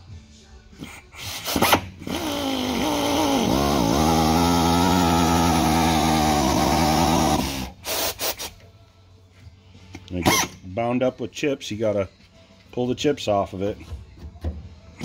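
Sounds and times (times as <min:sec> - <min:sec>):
air drill motor whining: 0:01.2 - 0:08.5.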